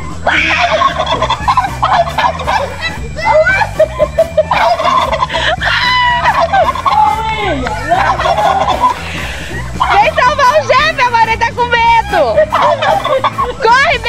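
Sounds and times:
poultry gobbling calls: 0.0 - 14.0.

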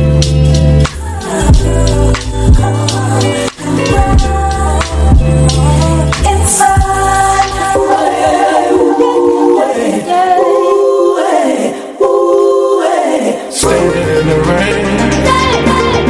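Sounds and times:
music with singing voices: 0.0 - 16.0.

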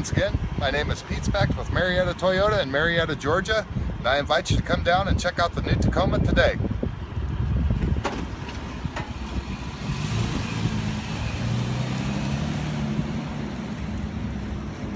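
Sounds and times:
pickup engine pulling away: 8.2 - 14.9.

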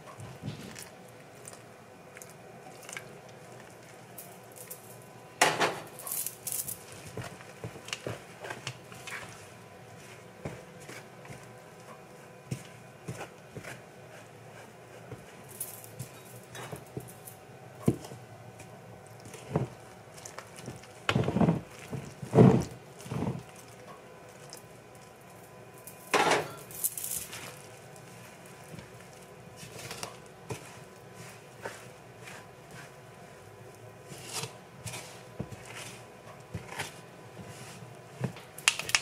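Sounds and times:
fork scraping a mixing bowl: 34.0 - 37.8.

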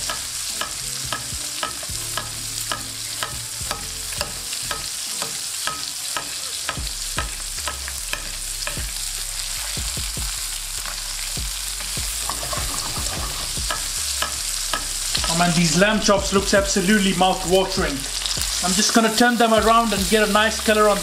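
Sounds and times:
butter sizzling in a frying pan: 0.0 - 21.0
spoon clicking against pan: 0.1 - 8.8.

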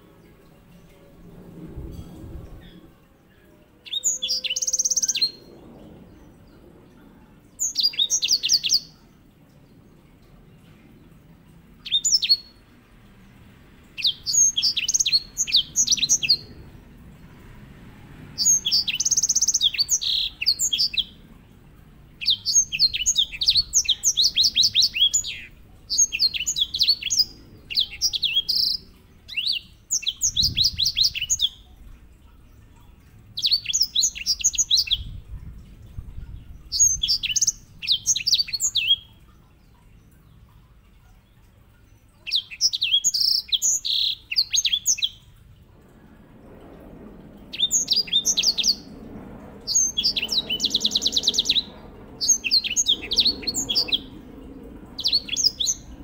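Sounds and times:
finch trilling song: 49.7 - 54.2.

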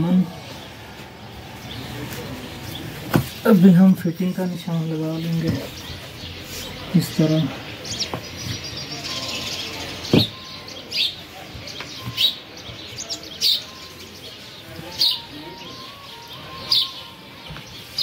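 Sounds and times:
small bird chirping: 5.0 - 18.0.

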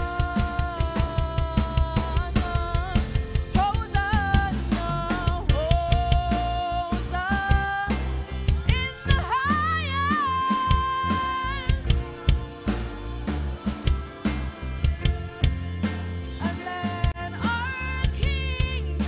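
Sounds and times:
drum kit played with sticks: 0.0 - 19.0
woman singing: 0.0 - 19.0.

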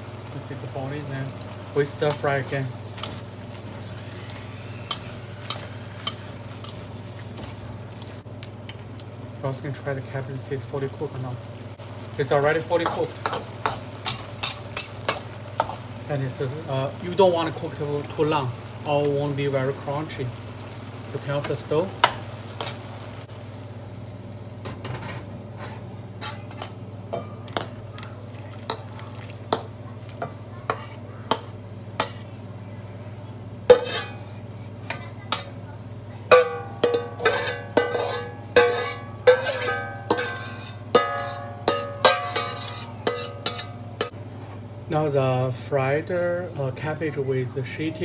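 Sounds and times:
metal spatula scraping a wok: 2.0 - 8.2, 12.8 - 15.9, 24.8 - 28.1, 28.7 - 32.4, 33.7 - 35.6, 36.3 - 44.1.

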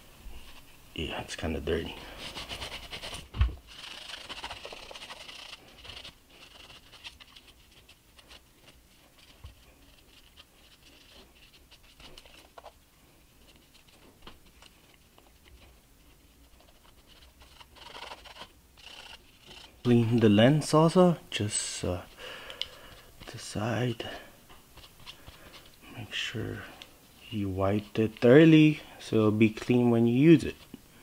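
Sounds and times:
paper towel rubbing on camera: 2.1 - 12.8, 13.4 - 20.2.

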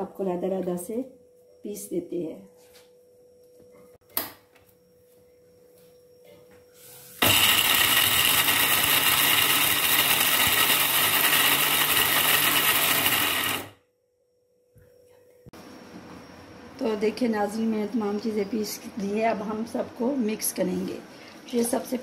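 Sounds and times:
mixer grinder motor running: 7.2 - 13.8.

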